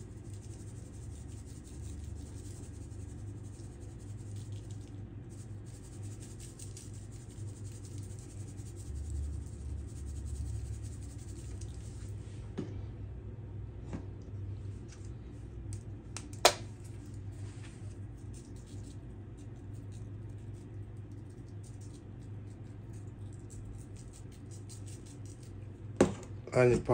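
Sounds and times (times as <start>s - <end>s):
seasoning shaken from shaker: 0.0s - 12.2s, 16.7s - 25.6s
steady low hum: 0.0s - 26.9s.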